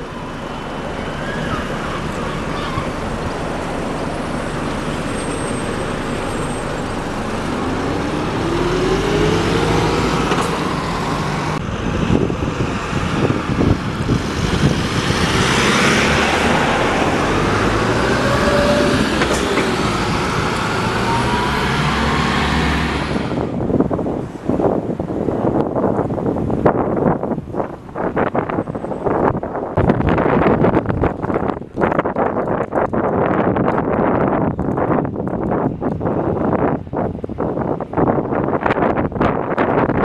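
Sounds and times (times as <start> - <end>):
rising whine: 0.0 - 23.6
buses driving past: 0.0 - 40.0.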